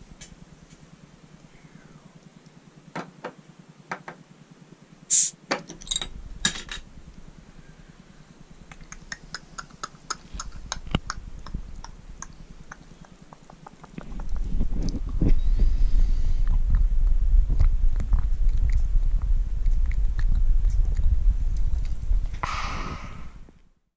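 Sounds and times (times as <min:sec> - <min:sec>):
carbonation hiss: 0:05.1 - 0:05.4.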